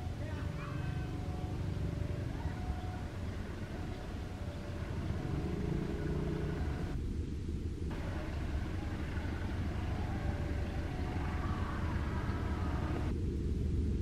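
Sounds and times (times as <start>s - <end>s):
train rumbling on track: 7.9s - 13.2s.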